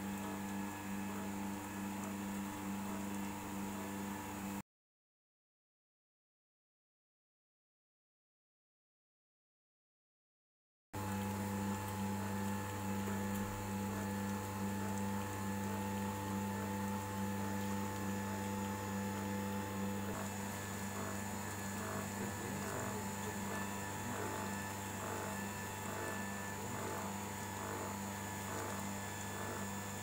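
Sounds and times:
oil press motor humming: 0:00.0 - 0:04.6, 0:11.0 - 0:30.0.

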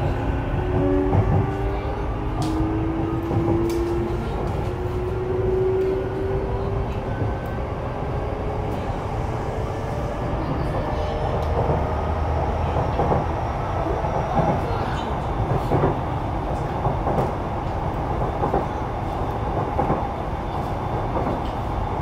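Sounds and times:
train wheel and track rumble: 0:00.0 - 0:22.0.

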